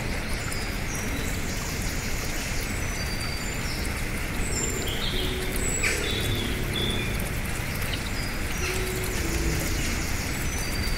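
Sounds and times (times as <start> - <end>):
stream splashing over rocks: 0.0 - 10.9
birds chirping: 3.3 - 10.9.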